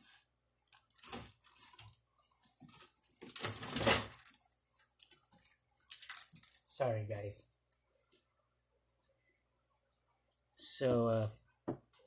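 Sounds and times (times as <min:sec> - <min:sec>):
crackling handling noise: 0:00.6 - 0:08.4.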